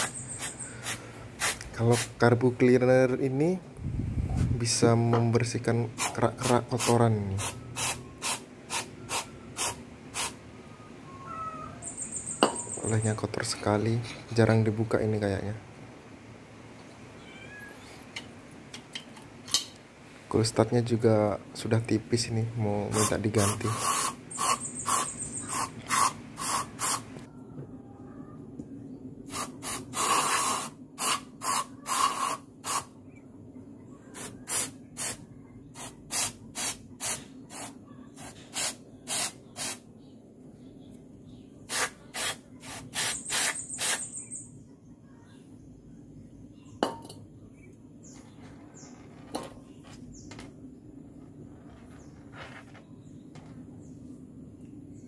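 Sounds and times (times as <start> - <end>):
aerosol spray bursts: 6.8 - 10.4, 22.9 - 27.1, 29.3 - 32.9, 34.2 - 35.2, 35.8 - 39.8, 41.7 - 44.1.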